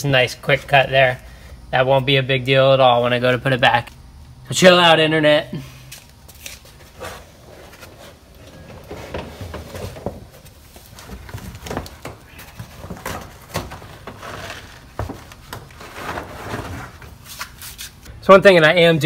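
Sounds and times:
carpet rustling and scraping: 0:05.9 - 0:18.1.

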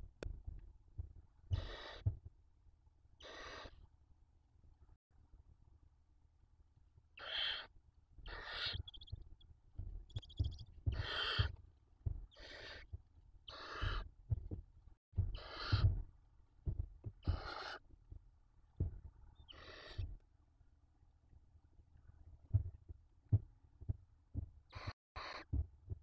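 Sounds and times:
owl chicks rasping hisses: 0:01.6 - 0:02.0, 0:03.2 - 0:03.8, 0:07.2 - 0:07.7, 0:08.3 - 0:08.8, 0:10.9 - 0:11.5, 0:12.3 - 0:12.9, 0:13.5 - 0:14.0, 0:15.4 - 0:15.8, 0:17.3 - 0:17.8, 0:19.5 - 0:20.0
soft knocks and scuffs: 0:13.8 - 0:17.5, 0:18.8 - 0:19.2.

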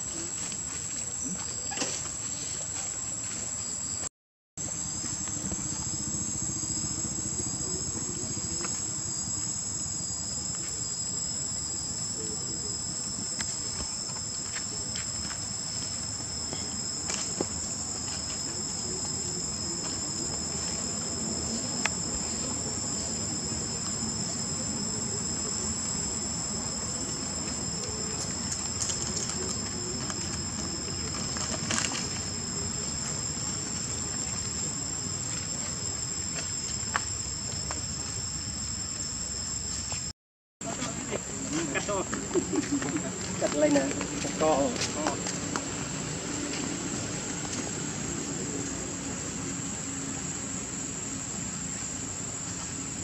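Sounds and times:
high-pitched insect chorus: 0:00.0 - 0:53.0.

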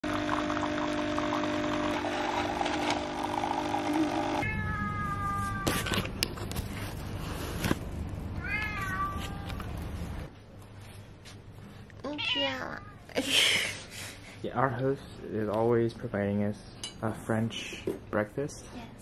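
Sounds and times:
coffee machine humming: 0:00.0 - 0:04.4
coffee pouring into mug: 0:00.0 - 0:04.4
cat meowing: 0:04.4 - 0:05.9, 0:08.4 - 0:09.7.

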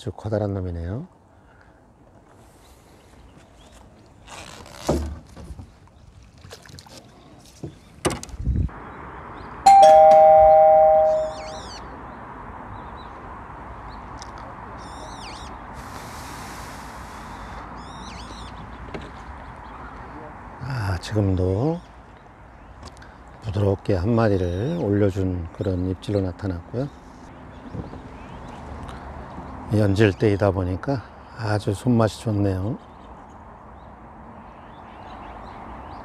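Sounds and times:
two-note ding-dong chime: 0:09.7 - 0:11.6
brief high chirps: 0:09.7 - 0:11.8.

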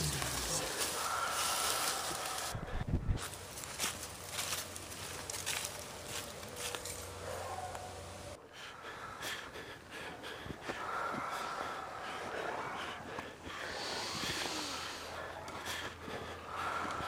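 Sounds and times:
footsteps through dry leaves: 0:00.0 - 0:02.6, 0:03.2 - 0:07.7
heavy breathing and snorting: 0:00.0 - 0:03.5, 0:08.4 - 0:17.0.

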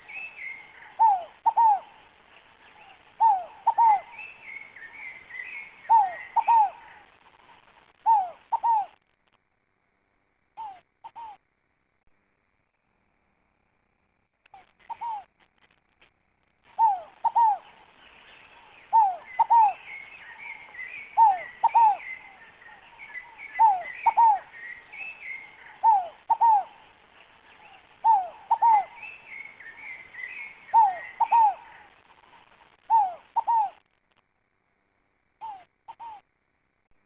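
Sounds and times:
dove cooing: 0:00.0 - 0:02.1, 0:02.7 - 0:09.0, 0:10.6 - 0:11.4, 0:14.5 - 0:15.3, 0:16.7 - 0:33.8, 0:35.4 - 0:36.2
small birds chirping: 0:00.0 - 0:09.1, 0:14.4 - 0:15.8, 0:16.4 - 0:34.1, 0:35.4 - 0:36.3.

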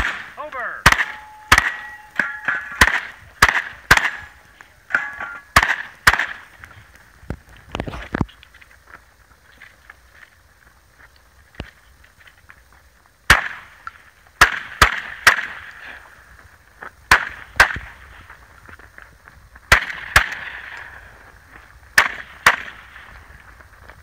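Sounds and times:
gunshots with rolling echo: 0:00.0 - 0:06.5, 0:19.7 - 0:21.0.

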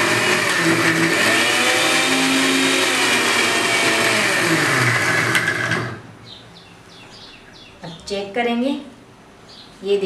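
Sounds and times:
mixer grinder motor running: 0:00.0 - 0:06.0.

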